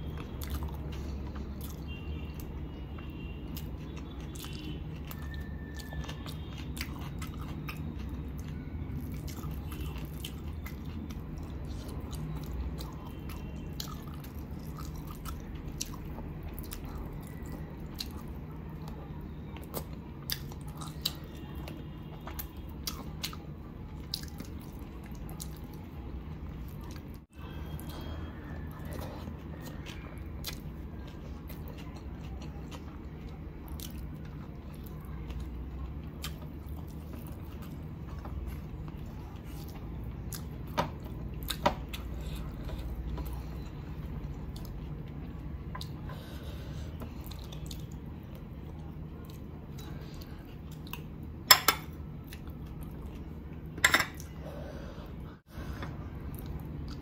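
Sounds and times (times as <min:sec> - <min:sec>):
chewing: 0:00.0 - 0:54.4
spoon clinking glass bowl: 0:53.8 - 0:54.2.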